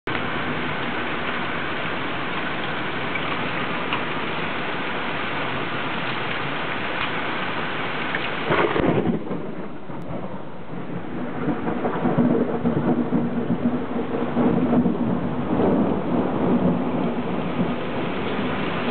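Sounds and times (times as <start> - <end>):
heavy rain and hail: 0.1 - 18.9
thunder clap: 8.4 - 18.9
thunder rumbling: 8.4 - 18.9.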